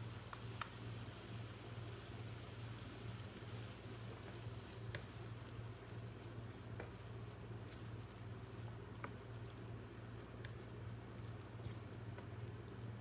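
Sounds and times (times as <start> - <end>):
sauce sizzling in frying pan: 0.1 - 13.0
wooden spatula stirring: 4.1 - 12.7.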